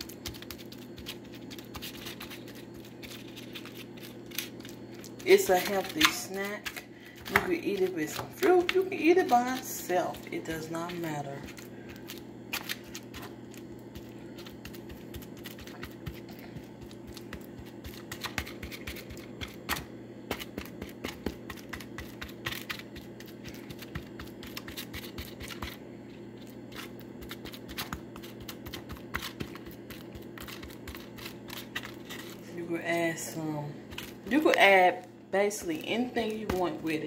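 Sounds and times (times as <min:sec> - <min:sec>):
steady low hum: 0:00.0 - 0:37.0
plastic spoon scraping foam bowl: 0:26.4 - 0:32.5.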